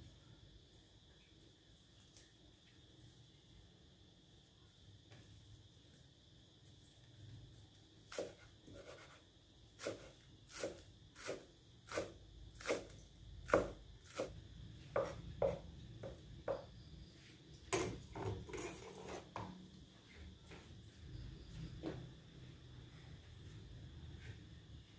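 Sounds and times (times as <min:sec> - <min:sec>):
knife cutting on cutting board: 0:08.1 - 0:09.2.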